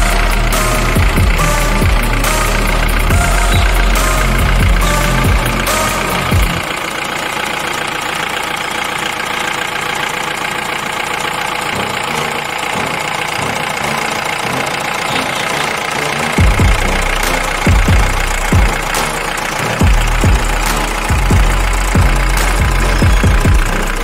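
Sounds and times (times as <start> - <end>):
short low thumps: 0.0 - 6.7, 16.4 - 19.2, 19.8 - 24.0
truck engine idling with knock: 0.0 - 24.0.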